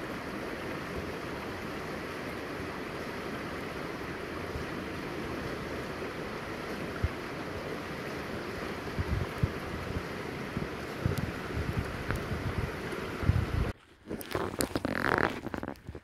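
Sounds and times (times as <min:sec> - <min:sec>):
river water rushing: 0:00.0 - 0:13.7
wind on microphone: 0:06.6 - 0:13.8.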